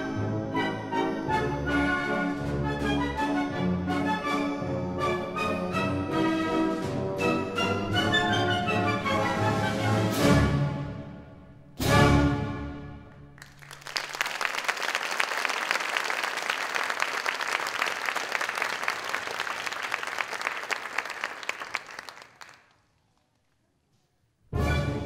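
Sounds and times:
audience applauding: 13.3 - 22.9.

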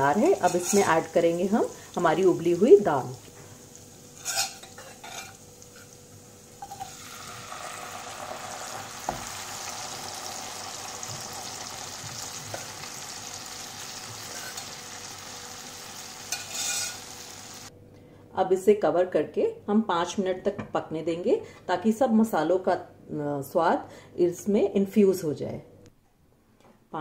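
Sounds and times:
food sizzling in a wok: 0.0 - 17.7.

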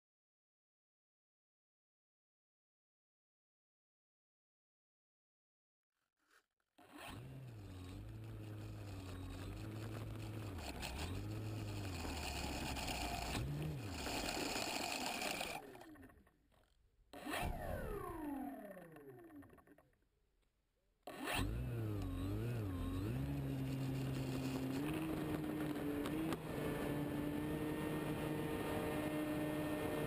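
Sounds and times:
model airplane engine and propeller: 6.8 - 20.1, 21.1 - 30.0.

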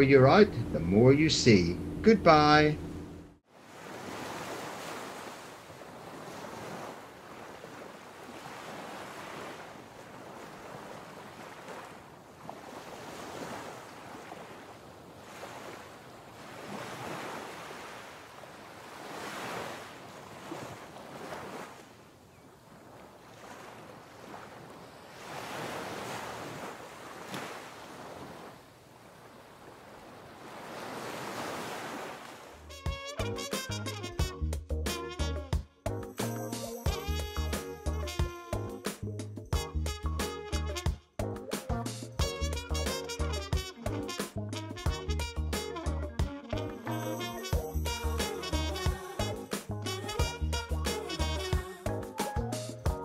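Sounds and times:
sea waves washing: 0.0 - 32.9, 46.8 - 50.3
wind: 0.0 - 53.0.

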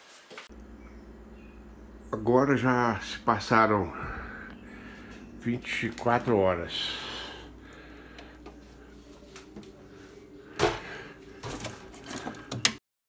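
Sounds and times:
faint steady hum: 0.5 - 12.8
items clacking and rattling: 10.6 - 12.8.

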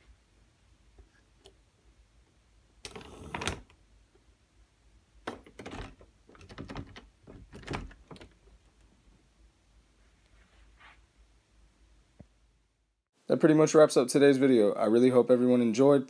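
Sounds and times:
door knocks and clatters: 5.2 - 8.4
door lock rattling: 5.3 - 8.5.

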